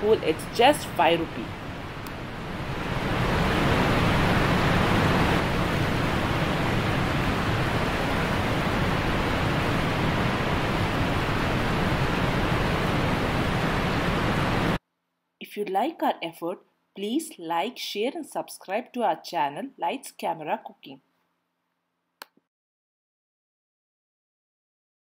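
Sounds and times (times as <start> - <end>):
rush of falling water: 0.1 - 14.8.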